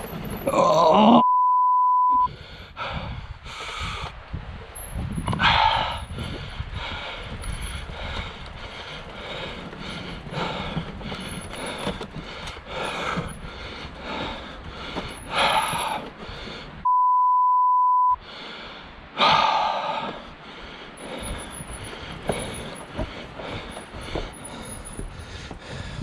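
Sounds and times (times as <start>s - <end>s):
censor bleep tone: 1.2s - 2.3s, 16.8s - 18.2s
bike tyres drumming over wooden slats: 6.1s - 16.1s, 21.0s - 26.0s.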